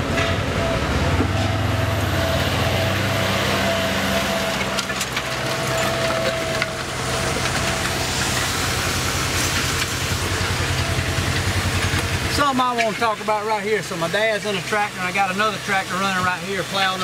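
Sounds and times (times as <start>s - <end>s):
tractor engine running: 0.0s - 17.0s
discs crackling through roots: 4.0s - 17.0s.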